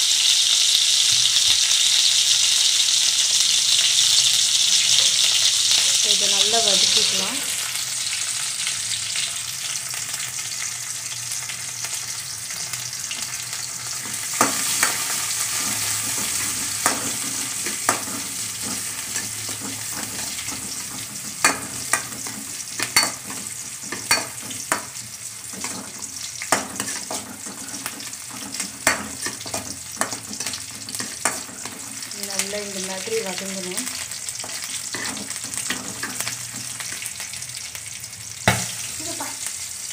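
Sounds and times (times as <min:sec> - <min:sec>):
onions sizzling in hot oil: 0:00.0 - 0:39.9
spatula scraping metal pan: 0:25.5 - 0:32.0.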